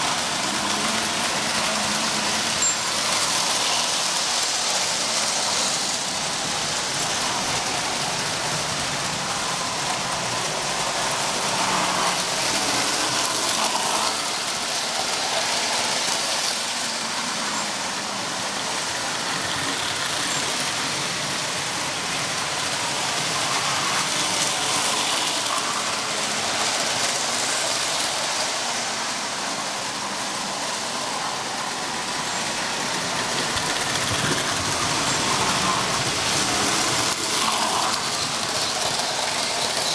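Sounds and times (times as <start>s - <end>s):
toy train motors whirring: 0.0s - 39.9s.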